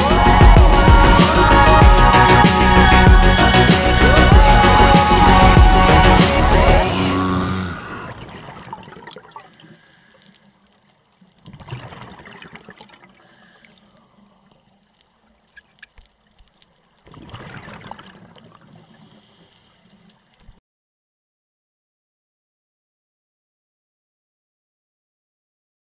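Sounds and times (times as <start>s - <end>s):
background music: 0.0s - 7.8s
underwater exhalation bubbles: 7.0s - 9.8s, 11.4s - 13.3s, 17.0s - 19.1s.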